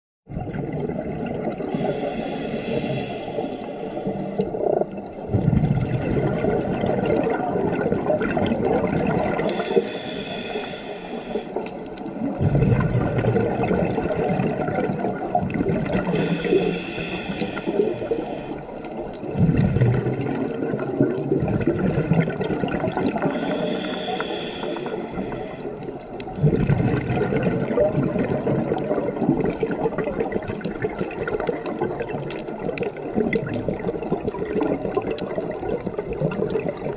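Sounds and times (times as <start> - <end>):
exhaled bubbles gurgling: 0.3 - 36.9
regulator hissing inhale: 1.7 - 4.6, 9.4 - 11.8, 16.0 - 18.8, 23.2 - 26.0.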